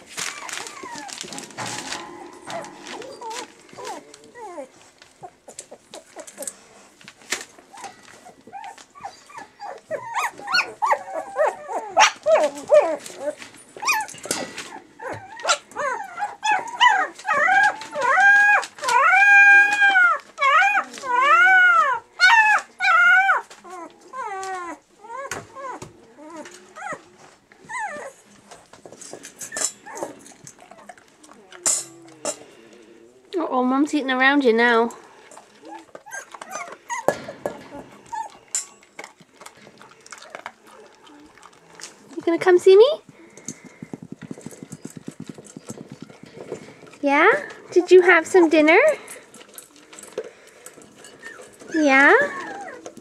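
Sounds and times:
puppy whining and crying: 0:00.0 - 0:06.9, 0:07.6 - 0:28.7, 0:29.4 - 0:32.5, 0:35.0 - 0:42.1, 0:50.8 - 0:53.0
dog crunching dry kibble: 0:00.0 - 0:33.0, 0:34.8 - 0:53.0.

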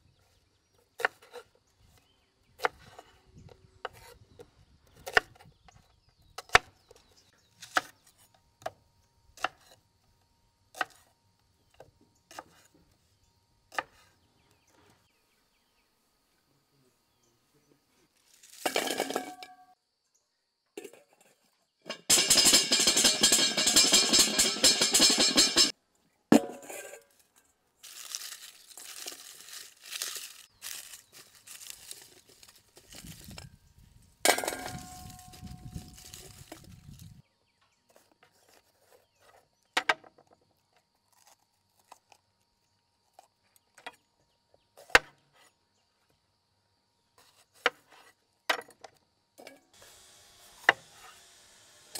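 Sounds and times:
garlic rattling in metal bowls: 0:21.9 - 0:25.7
metal bowl clanking: 0:21.9 - 0:25.7, 0:26.3 - 0:27.1
garlic skins crinkling: 0:27.1 - 0:33.5, 0:34.7 - 0:37.2.

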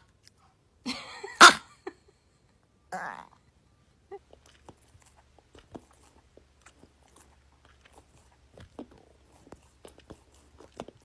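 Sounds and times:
dog licking: 0:04.2 - 0:11.0.

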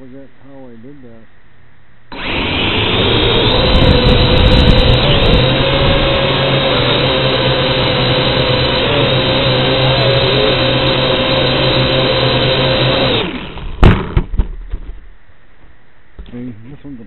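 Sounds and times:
drone propeller whine: 0:02.1 - 0:14.2
drone hitting ground: 0:13.6 - 0:15.1.

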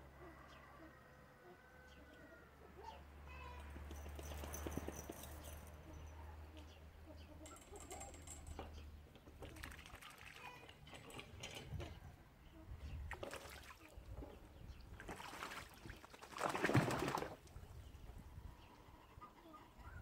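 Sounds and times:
duck splashing water: 0:09.4 - 0:10.7, 0:13.1 - 0:13.9, 0:14.9 - 0:17.5.

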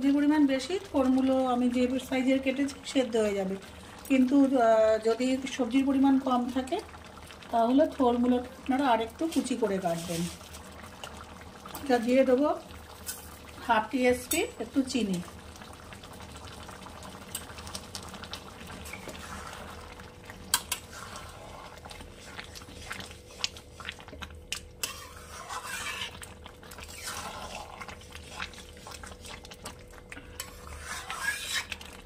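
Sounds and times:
spatula scraping metal pan: 0:20.5 - 0:21.7, 0:24.8 - 0:29.0, 0:30.3 - 0:32.0.

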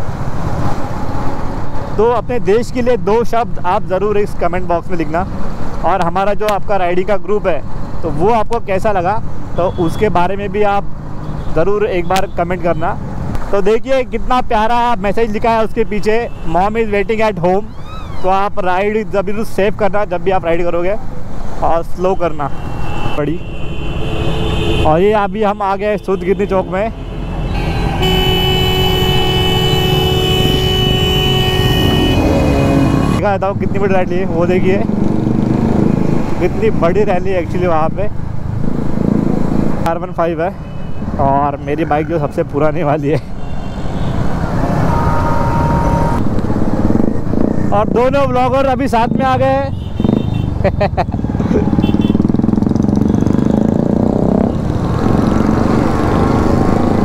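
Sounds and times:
other motorcycles: 0:00.0 - 0:57.0
vehicle horn: 0:22.6 - 0:25.0, 0:26.0 - 0:33.2, 0:43.4 - 0:46.3, 0:49.7 - 0:50.6, 0:51.7 - 0:52.3
two-stroke motorcycle engine revving: 0:34.3 - 0:36.9, 0:49.1 - 0:57.0
motorcycle engine running: 0:51.0 - 0:54.2.

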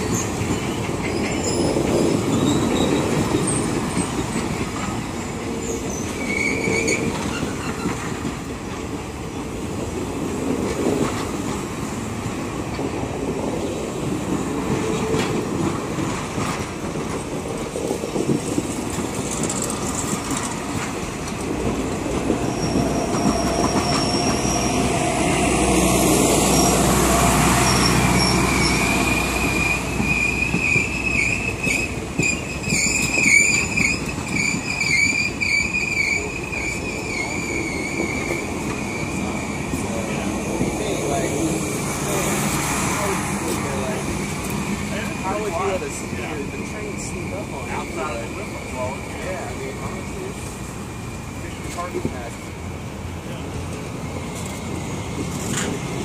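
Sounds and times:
train wheels clattering on rails: 0:00.0 - 0:56.0
high-pitched wheel squeals: 0:05.7 - 0:08.0, 0:22.4 - 0:25.5, 0:27.6 - 0:39.4.

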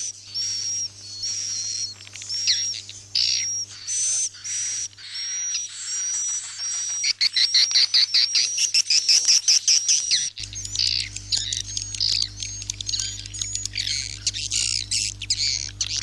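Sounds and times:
steady low hum: 0:00.0 - 0:05.6, 0:10.3 - 0:16.0
scratchy twittering: 0:00.0 - 0:16.0.

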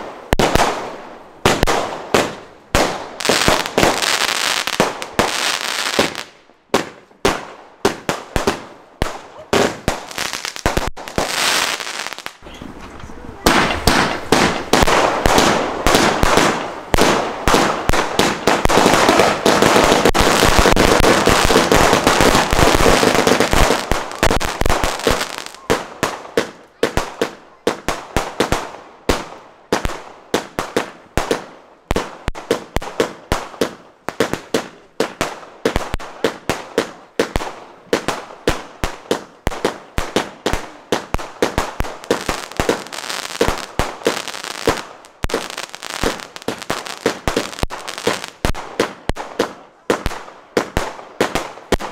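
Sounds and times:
firework cake bursts and bangs: 0:13.4 - 0:51.9.

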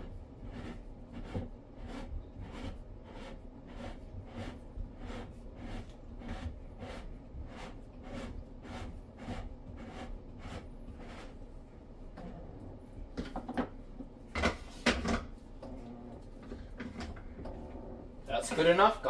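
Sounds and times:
soft rubbing on plastic: 0:00.0 - 0:13.0
plastic clacks and knocks: 0:13.2 - 0:15.8.

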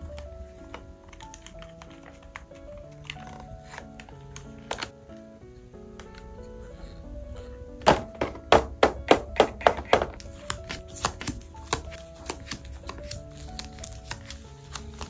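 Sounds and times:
soft background music: 0:00.0 - 0:15.0.

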